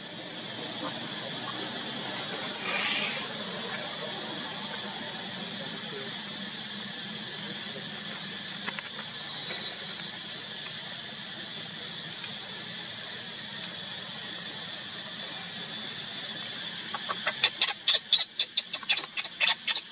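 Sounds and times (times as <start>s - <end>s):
insects droning: 0.0s - 19.9s
baby monkey crying: 16.9s - 19.9s.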